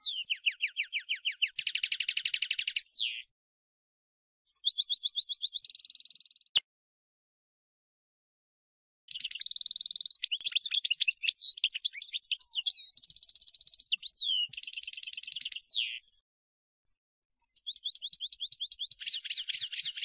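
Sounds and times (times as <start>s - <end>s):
bird twittering and trilling: 0.0s - 3.3s, 4.6s - 6.6s, 9.1s - 16.2s, 17.4s - 20.0s.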